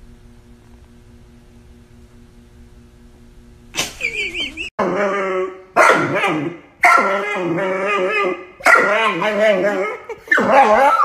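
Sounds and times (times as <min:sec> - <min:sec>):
dog whining: 0:04.5 - 0:11.0.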